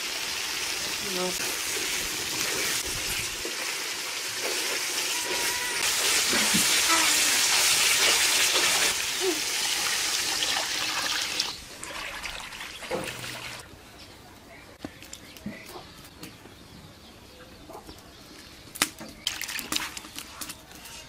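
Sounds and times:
curry sizzling and bubbling in a wok: 0.0 - 11.8.

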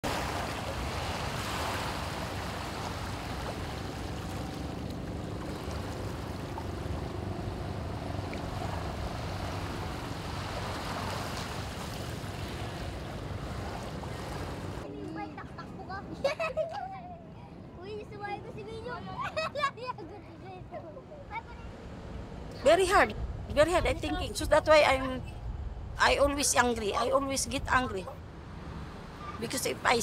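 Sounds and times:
water noise: 0.0 - 14.9
wind: 0.0 - 30.0
faint steady hum: 0.2 - 30.0.

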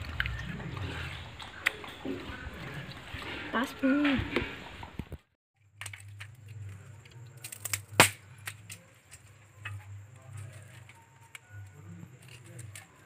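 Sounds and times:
twigs clicking in wood fire: 5.1 - 13.0
sharp crack: 7.4 - 8.8.

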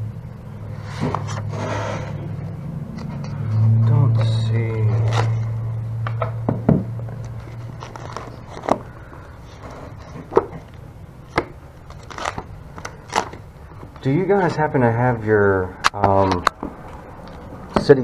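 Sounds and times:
low hum: 0.0 - 14.0
paper pages rustling: 0.8 - 2.1, 4.8 - 5.5, 7.2 - 14.2.

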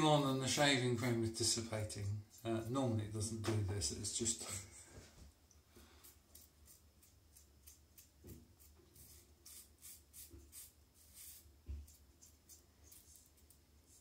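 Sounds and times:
razor scraping stubble: 6.3 - 11.4.

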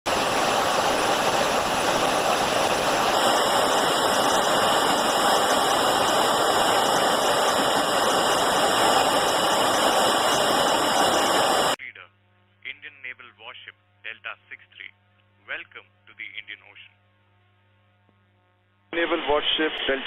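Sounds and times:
jet aircraft cabin roar: 0.1 - 11.8.

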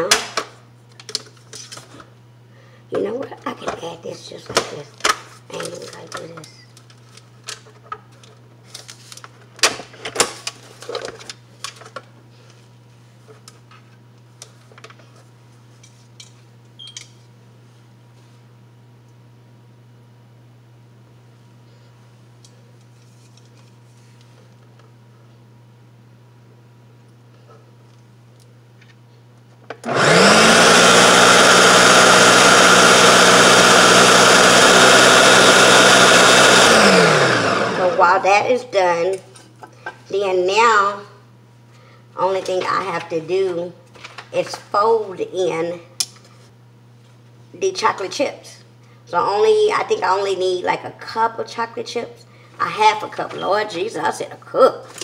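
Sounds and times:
blender running: 29.8 - 38.2.

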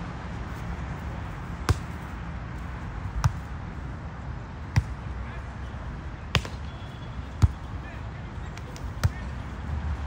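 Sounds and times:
volleyball smacks: 6.3 - 6.6.

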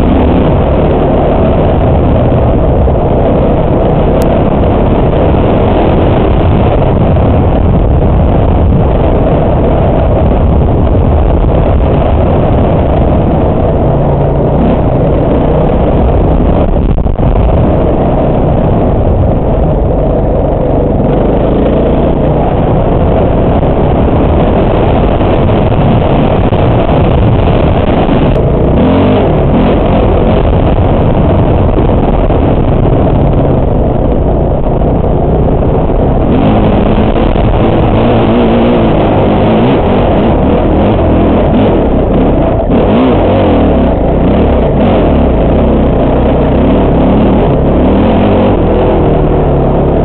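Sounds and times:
wind rushing over microphone: 0.0 - 50.0
dirt bike engine revving: 20.0 - 33.0, 35.9 - 50.0.

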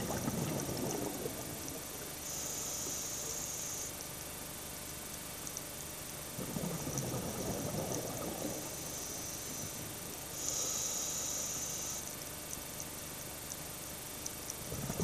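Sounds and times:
gurgle of exhaled bubbles: 0.0 - 2.3, 6.3 - 10.1, 14.6 - 15.0
steady background hiss: 0.0 - 15.0
hiss of inhaled breath: 8.9 - 12.1
faint clicks: 11.9 - 14.6.

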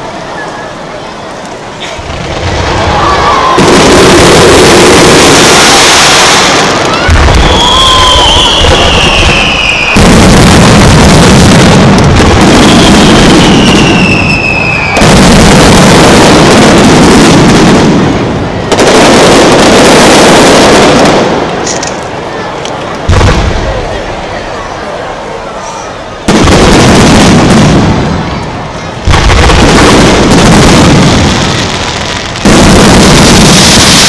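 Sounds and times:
fireworks bursts: 0.0 - 34.0
high descending whistle: 2.9 - 10.1, 13.3 - 15.1.

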